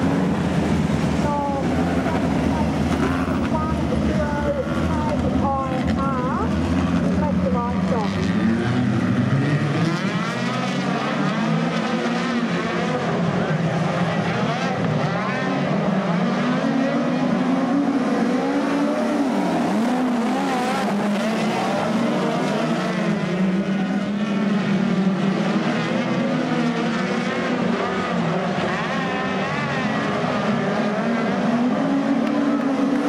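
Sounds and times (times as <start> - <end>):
racing car engines running: 0.0 - 33.0.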